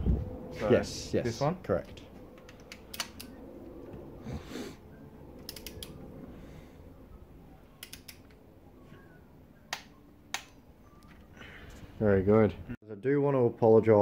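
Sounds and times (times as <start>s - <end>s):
sharp metallic clicks: 2.4s - 3.4s, 5.4s - 6.0s, 7.8s - 8.4s, 9.7s - 10.6s.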